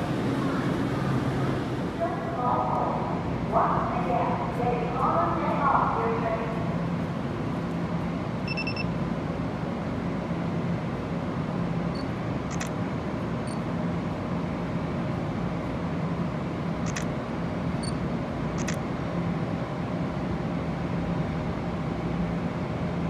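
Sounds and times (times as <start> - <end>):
underground train platform rumble: 0.0 - 23.0
high electronic beep: 8.5 - 8.9.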